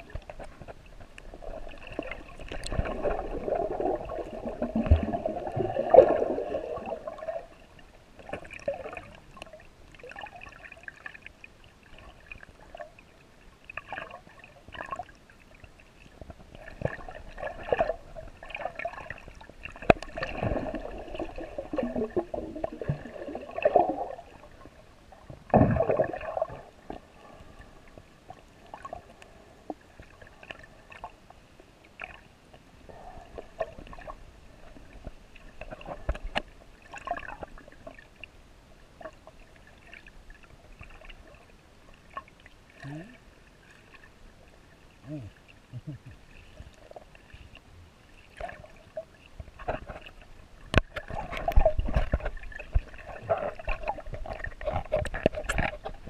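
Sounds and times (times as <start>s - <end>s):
muffled water sloshing and gurgling: 0.0s - 56.0s.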